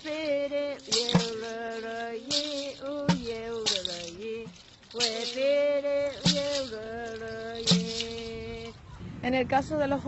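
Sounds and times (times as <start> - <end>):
bamboo tube thudding on ground: 0.8 - 8.5.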